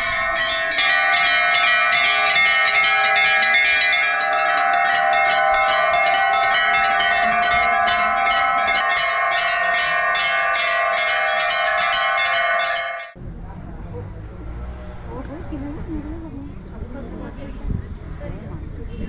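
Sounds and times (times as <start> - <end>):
brass bells ringing: 0.0 - 13.2.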